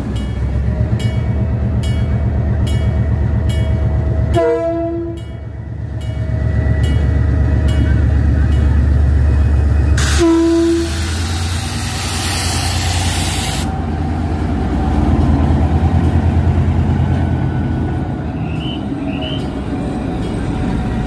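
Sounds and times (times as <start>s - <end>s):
diesel locomotive engine rumble: 0.0s - 21.0s
train horn toot: 4.3s - 5.3s, 10.0s - 11.1s
loud hiss: 10.0s - 13.7s.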